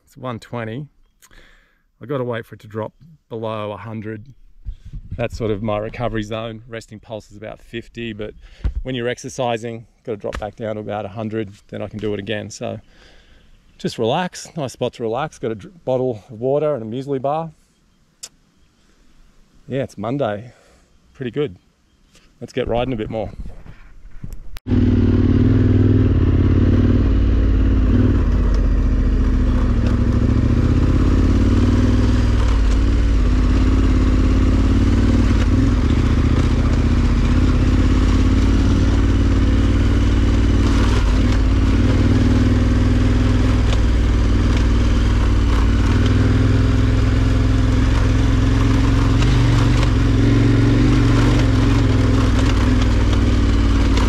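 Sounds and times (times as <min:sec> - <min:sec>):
motorcycle engine running: 0:24.7 - 0:54.0.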